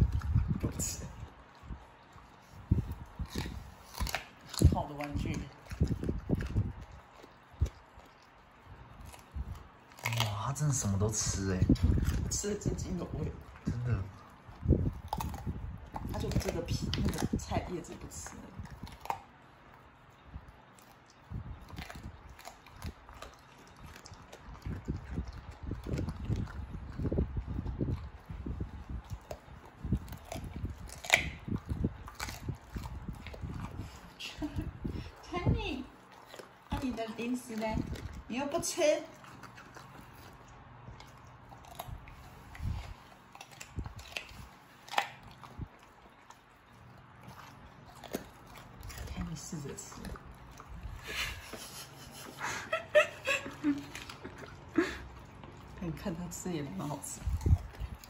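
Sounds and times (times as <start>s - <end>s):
dog chewing crunchy stem: 0.0s - 58.0s.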